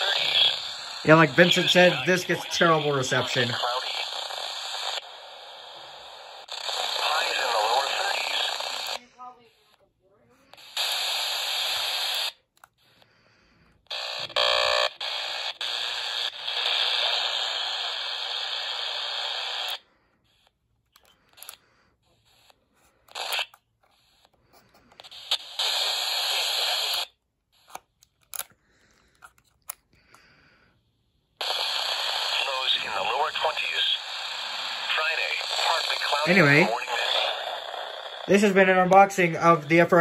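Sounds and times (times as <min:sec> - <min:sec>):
radio static hiss: 0:00.0 - 0:09.5, 0:13.9 - 0:19.8, 0:25.0 - 0:27.1, 0:31.4 - 0:40.0
radio clicks: 0:25.0 - 0:27.1, 0:31.4 - 0:40.0.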